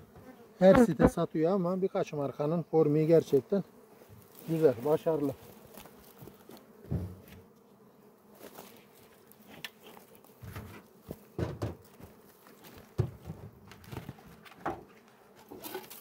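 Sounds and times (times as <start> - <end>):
bees buzzing: 0.0 - 16.0
dull knocks: 11.4 - 11.8, 13.0 - 14.9.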